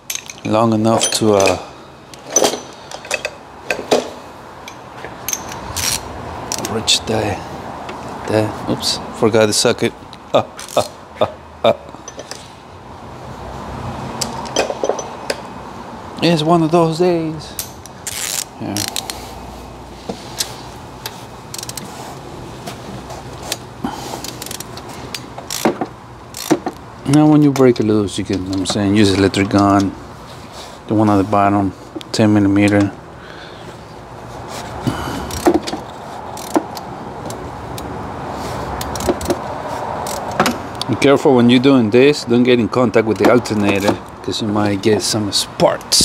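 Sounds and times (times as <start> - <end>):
tools clinking against engine: 0.0 - 6.8, 10.6 - 11.0, 11.9 - 12.6, 14.2 - 15.5, 23.5 - 30.0, 34.9 - 37.8, 38.8 - 40.6, 43.0 - 44.8
ratchet clicking: 4.6 - 6.7, 17.6 - 19.2, 20.4 - 21.9, 24.2 - 27.2, 35.3 - 37.9, 38.8 - 39.4, 40.0 - 40.4.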